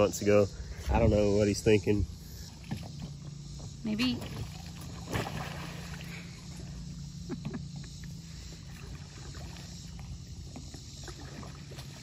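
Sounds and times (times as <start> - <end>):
paddle splashing in water: 4.2 - 6.6, 8.6 - 12.0.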